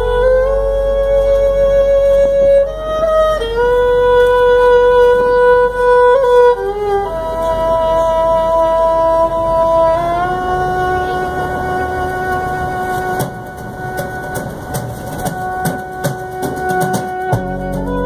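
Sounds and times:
violin playing slow melody: 0.0 - 18.0
band playing: 4.6 - 18.0.

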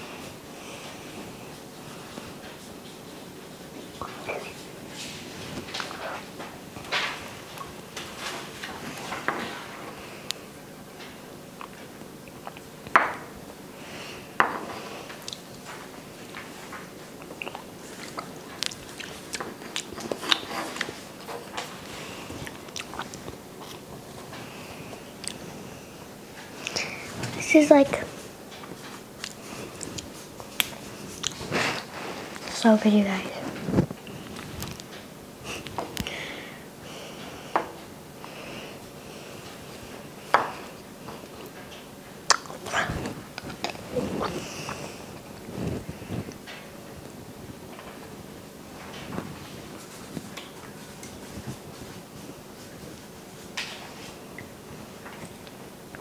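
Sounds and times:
wet smacking chews: 17.2 - 21.7, 22.4 - 24.1, 42.3 - 45.5
sharp mouth clicks: 42.3 - 42.9.

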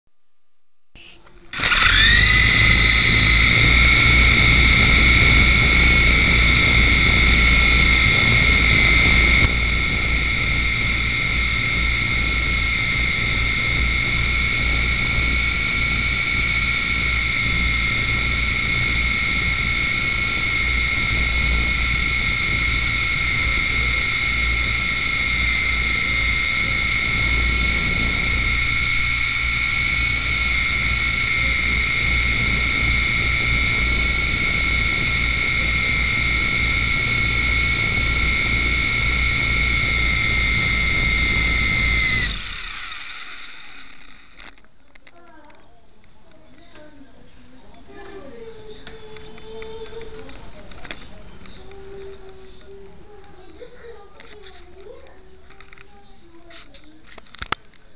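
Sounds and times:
low electrical hum: 0.1 - 57.9
high-pitched whine: 1.0 - 45.1, 47.8 - 57.8.

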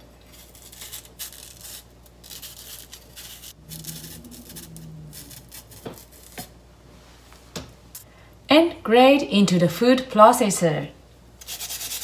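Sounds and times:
knife scraping skin off yam: 0.3 - 4.6.

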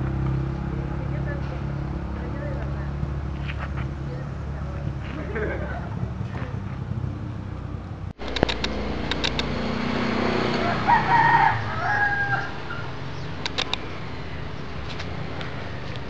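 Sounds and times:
rooster crowing: 10.3 - 13.2.

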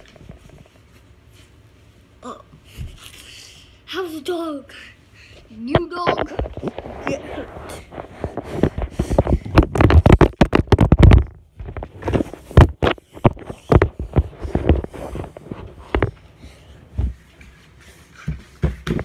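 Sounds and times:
knocks and scrapes: 5.6 - 16.2.

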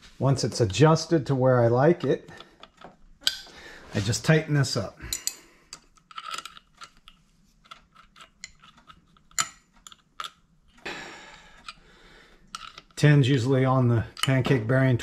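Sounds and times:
wrench clicking on metal: 5.1 - 7.0, 12.5 - 13.0.

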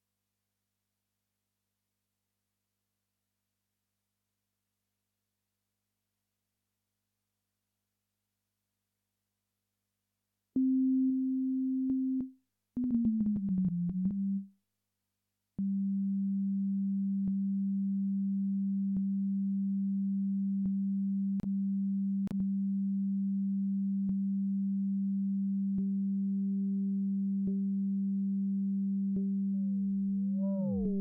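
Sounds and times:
faint higher tone: 30.4 - 31.0
synthesizer sine tone: 30.4 - 31.0.

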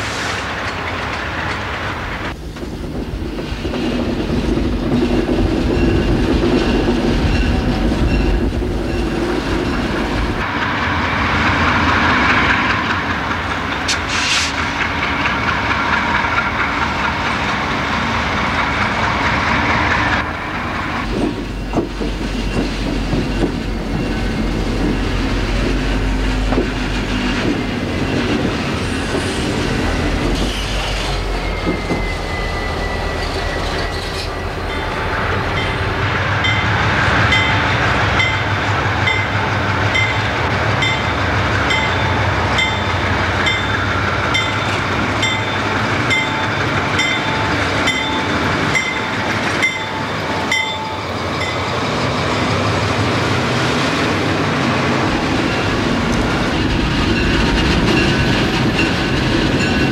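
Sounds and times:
diesel locomotive engines: 0.0 - 59.9
train rumble: 0.0 - 59.9
wheel squeal: 28.8 - 34.9
bell ringing: 44.4 - 51.7.

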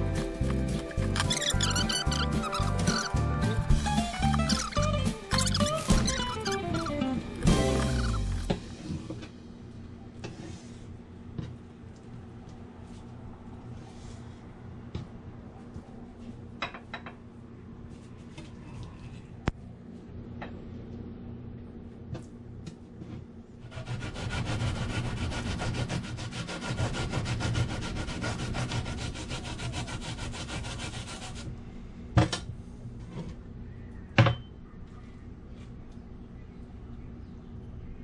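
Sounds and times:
radish grated on metal grater: 0.1 - 8.5.

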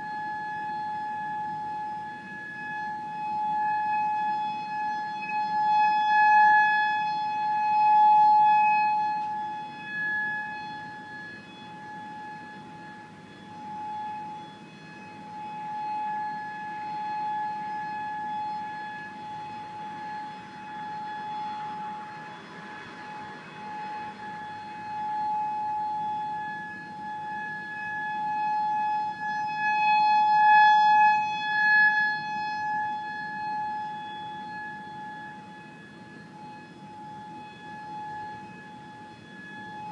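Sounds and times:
warning siren steady tone: 0.0 - 39.9.

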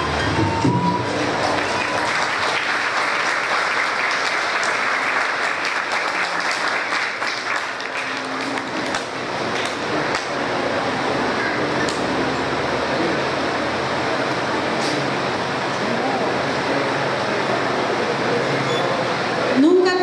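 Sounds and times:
audience applauding: 0.0 - 13.5.

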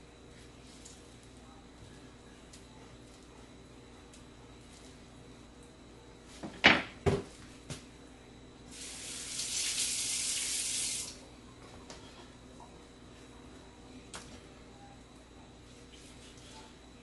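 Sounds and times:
kitchen faucet running: 8.7 - 11.2.

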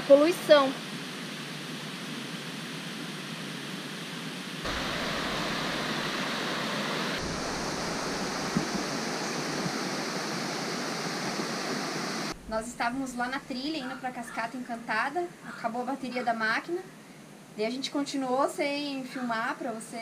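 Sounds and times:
stream rushing over rocks: 4.6 - 12.4.

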